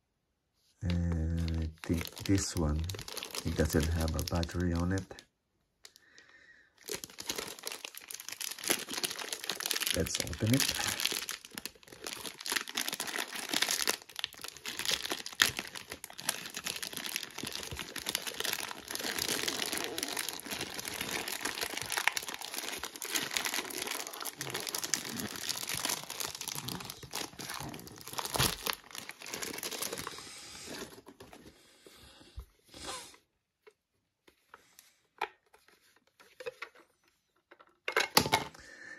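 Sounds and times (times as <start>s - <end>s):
plastic bag crinkling: 0.9s - 5.2s, 6.8s - 31.5s.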